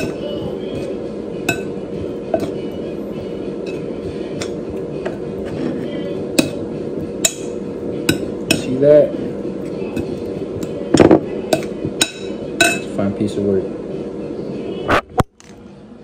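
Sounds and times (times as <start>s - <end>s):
utensils clinking against dishes: 0.0s - 2.8s, 3.6s - 13.1s.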